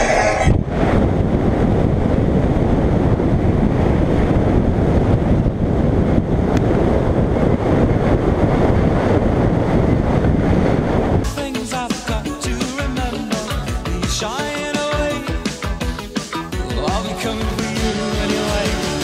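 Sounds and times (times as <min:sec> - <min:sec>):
wind buffeting microphone: 0:00.0 - 0:11.3.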